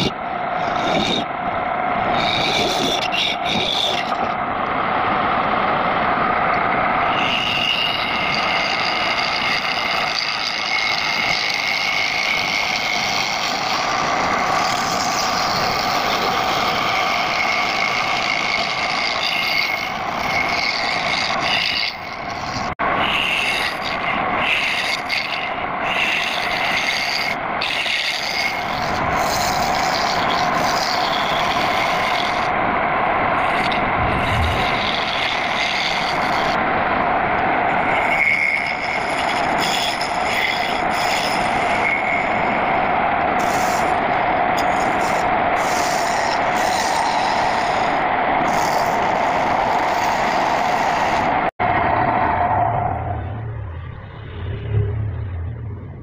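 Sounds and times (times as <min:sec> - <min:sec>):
steady lathe tone: 0:00.0 - 0:53.3
chisel scraping wood on lathe: 0:07.2 - 0:32.5, 0:33.4 - 0:36.6, 0:38.0 - 0:42.5, 0:43.4 - 0:51.4.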